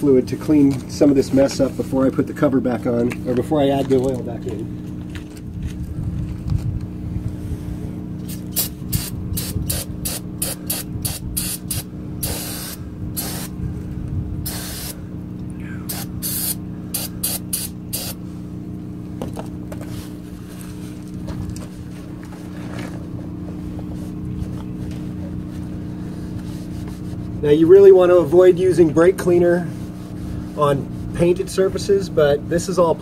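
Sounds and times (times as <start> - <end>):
aerosol spray hissing: 8.2 - 13.6, 14.4 - 15.0, 15.8 - 18.2.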